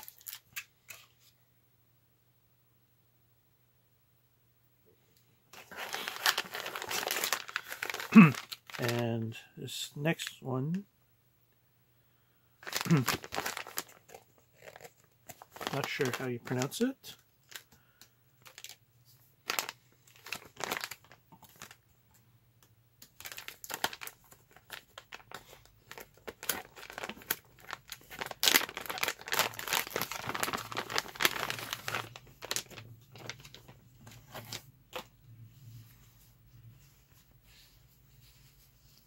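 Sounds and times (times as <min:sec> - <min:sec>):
plastic bag crinkling and rustling: 0:00.0 - 0:01.2, 0:05.5 - 0:09.0, 0:12.6 - 0:17.8, 0:18.4 - 0:21.9, 0:23.0 - 0:39.0.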